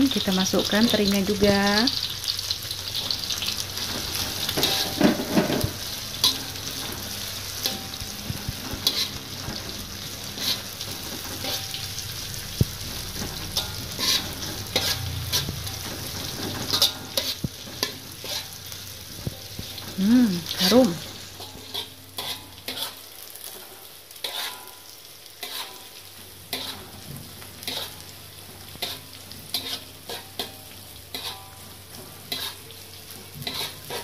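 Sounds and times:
food sizzling in hot oil: 0.0 - 34.0
metal spatula clacking and scraping: 3.8 - 12.0, 13.2 - 18.6, 21.4 - 23.1, 24.2 - 24.8, 25.4 - 28.1, 28.7 - 32.7, 33.3 - 34.0.

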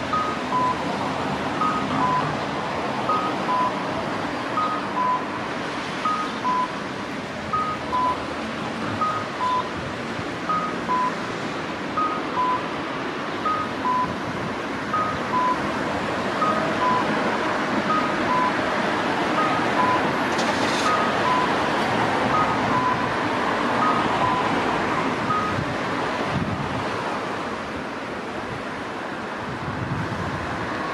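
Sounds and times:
street traffic: 0.0 - 30.9
electronic cuckoo crossing signal: 7.6 - 8.2, 13.4 - 14.2.

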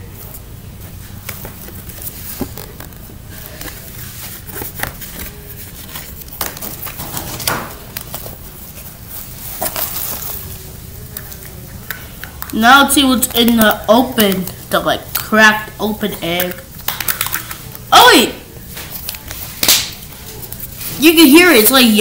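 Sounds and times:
paper and plastic rustling: 0.2 - 11.5, 18.6 - 21.6
plastic eggs clicking: 16.4 - 17.8.

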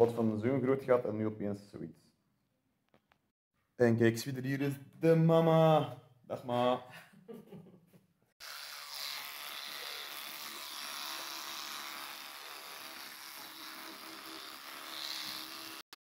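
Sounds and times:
electric toothbrush buzzing: 8.4 - 16.0.

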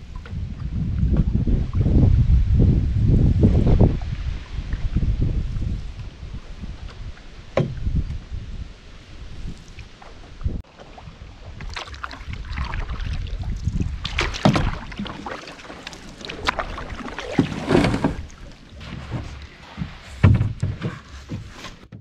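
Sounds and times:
paddle splashing in water: 9.4 - 22.0
knocks on canoe hull: 18.9 - 22.0.

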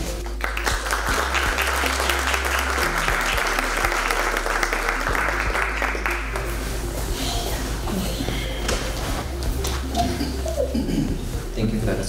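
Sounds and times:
audience applauding: 0.1 - 6.8.

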